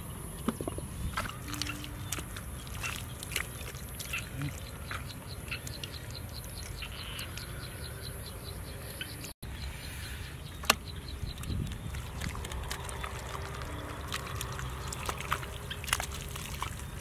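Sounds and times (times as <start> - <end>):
hands squelching in wet mud: 1.1 - 7.5, 11.4 - 17.0
small wet clicks and smacks: 1.2 - 7.5, 10.6 - 17.0.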